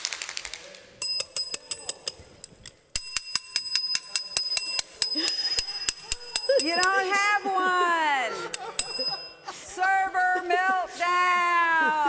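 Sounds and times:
desk service bell dinging: 1.0s - 7.0s, 8.6s - 9.4s.

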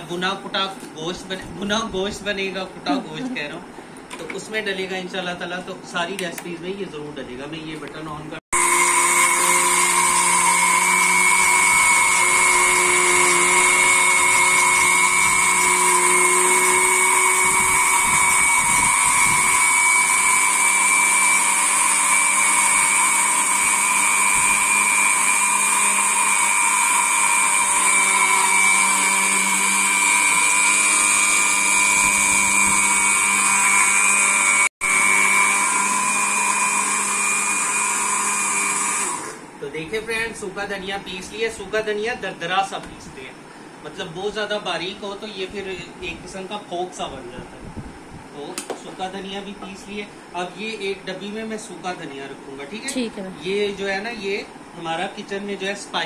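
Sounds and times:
electric spice grinder grinding: 8.6s - 39.4s.

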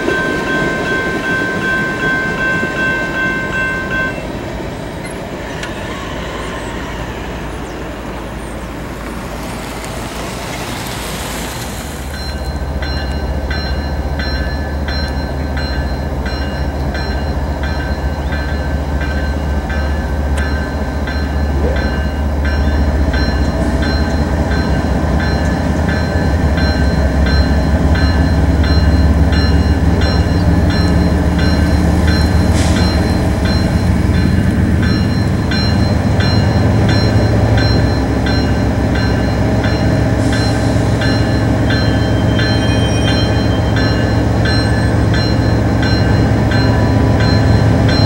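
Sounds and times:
diesel locomotive engine drone: 0.0s - 48.0s
train wheels clicking on rails: 0.0s - 48.0s
high-pitched rail ringing: 12.1s - 48.0s.

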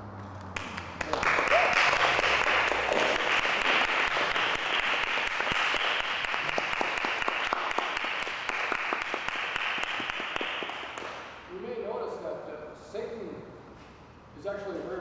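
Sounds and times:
audience applauding: 0.6s - 11.3s.

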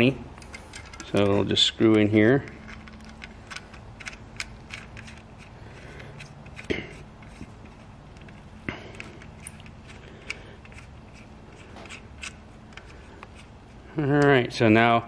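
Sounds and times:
steady low hum: 0.0s - 15.0s
metal bolt clicks and ticks: 0.3s - 5.5s.

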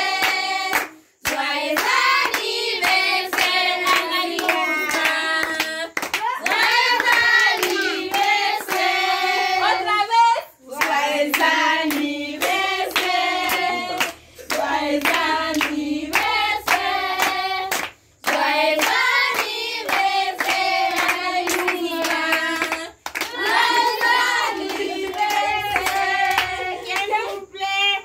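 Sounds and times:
group singing: 0.0s - 27.5s
hands clapping in time: 0.2s - 8.8s.

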